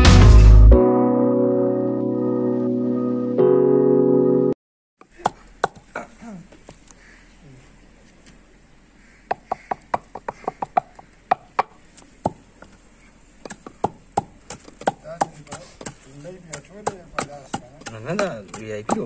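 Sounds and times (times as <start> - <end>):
stone pestle pounding in mortar: 5.2 - 5.9, 9.3 - 12.4, 13.4 - 19.0.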